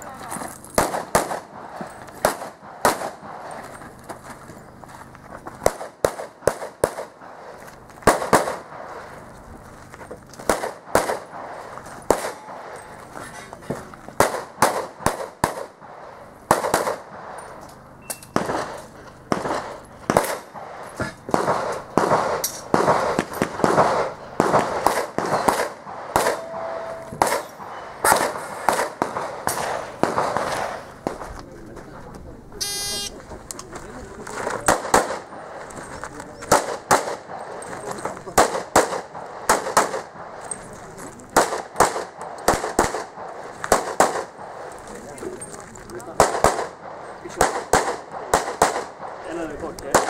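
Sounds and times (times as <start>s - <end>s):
pistol shots: 0.7s - 3.7s, 5.6s - 9.2s, 10.4s - 13.0s, 14.2s - 17.6s, 18.2s - 31.3s, 34.6s - 35.6s, 36.4s - 37.7s, 38.3s - 40.5s, 41.3s - 44.8s, 46.2s - 49.2s.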